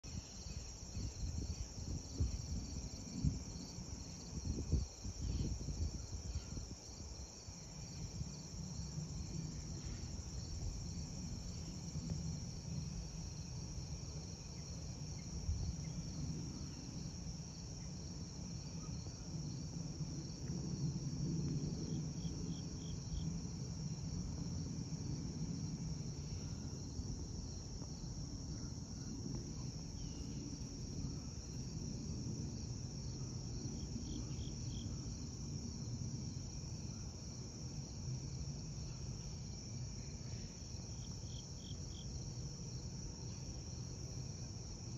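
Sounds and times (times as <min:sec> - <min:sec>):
crickets chirring: 0:00.0 - 0:44.9
wind buffeting microphone: 0:00.1 - 0:14.4.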